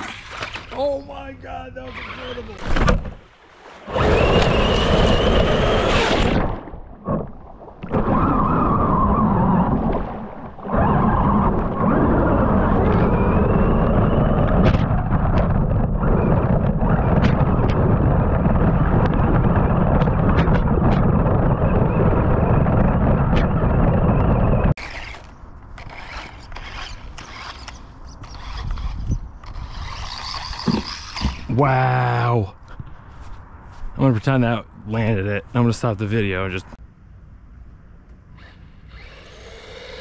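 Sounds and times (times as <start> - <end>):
electric motor whine: 38.4 - 40.0.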